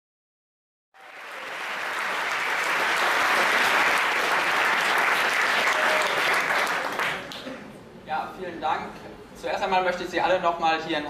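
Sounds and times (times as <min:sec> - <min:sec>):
audience applauding: 0:01.0 - 0:07.7.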